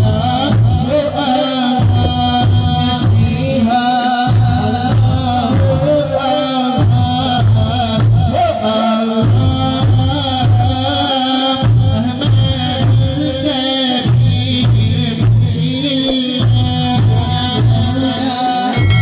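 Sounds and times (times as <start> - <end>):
folk singing: 0.0 - 19.0
steady drum beat: 16.1 - 19.0.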